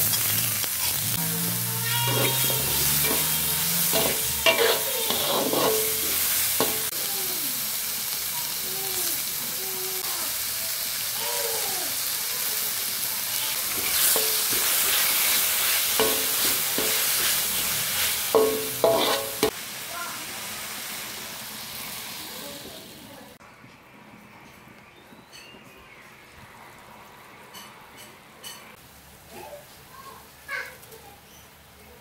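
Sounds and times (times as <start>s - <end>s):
metal spatula scraping a pan: 0.0s - 6.9s, 13.5s - 19.6s
vegetables sizzling in a wok: 0.0s - 23.4s, 26.6s - 32.0s.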